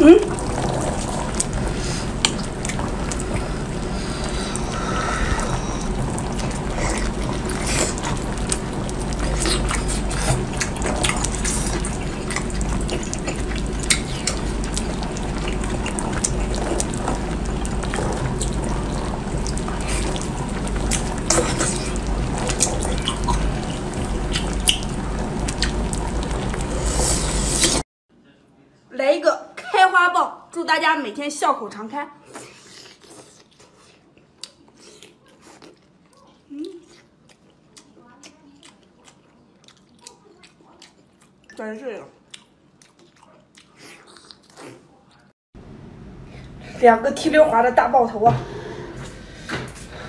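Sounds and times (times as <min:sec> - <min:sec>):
wet sucking and chewing: 0:00.2 - 0:27.8, 0:32.2 - 0:41.6, 0:42.2 - 0:45.3
small clicks and wet smacks: 0:36.1 - 0:41.6.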